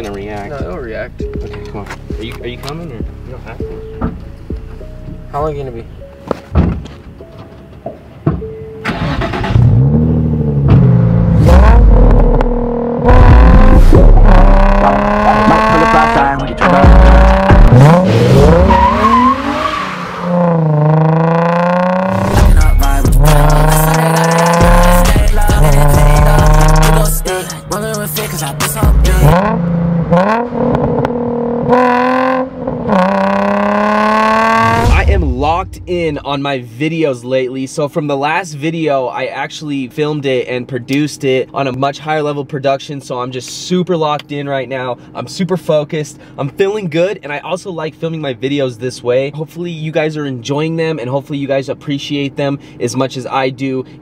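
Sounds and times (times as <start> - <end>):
car engine starting and revving: 8.8 - 27.4, 28.2 - 36.4.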